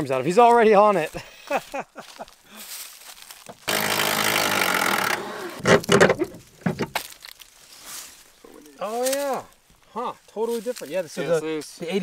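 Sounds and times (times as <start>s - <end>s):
impact wrench buzzing: 3.6s - 6.9s.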